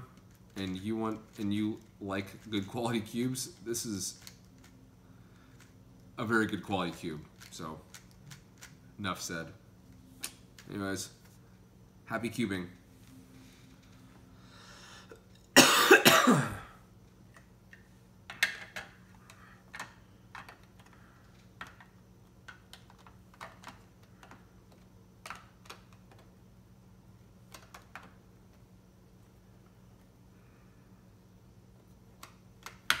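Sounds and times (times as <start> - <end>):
man coughing hard: 15.6 - 16.8.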